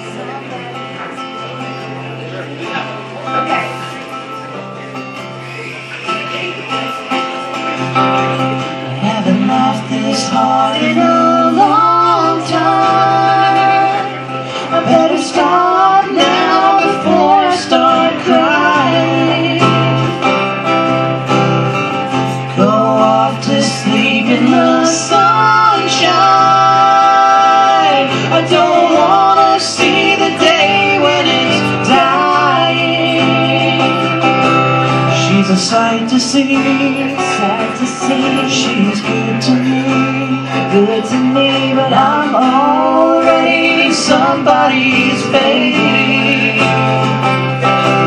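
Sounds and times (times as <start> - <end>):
acoustic guitar: 0.0 - 48.0
man and woman singing together: 8.9 - 20.3, 22.5 - 48.0.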